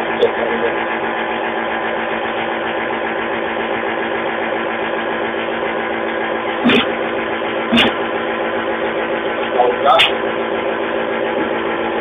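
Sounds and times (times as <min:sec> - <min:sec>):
electric machine hum: 0:00.0 - 0:12.0
sharp knock: 0:06.6 - 0:07.0, 0:07.7 - 0:08.0.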